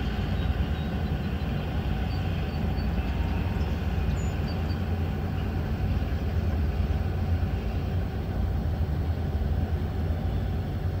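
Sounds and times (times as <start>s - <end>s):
freight train low rumble: 0.0s - 11.0s.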